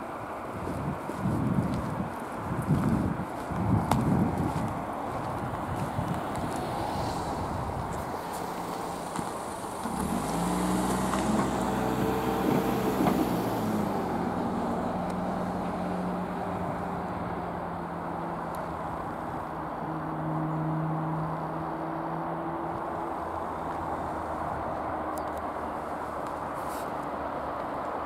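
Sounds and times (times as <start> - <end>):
car engine humming: 3.1 - 27.6
car driving past: 6.0 - 25.6.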